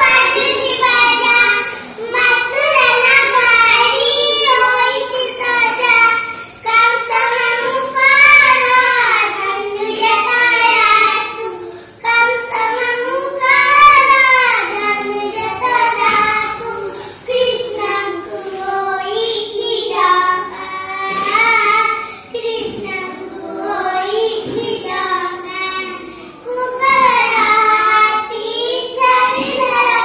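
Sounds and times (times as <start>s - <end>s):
girls singing: 0.0s - 30.0s.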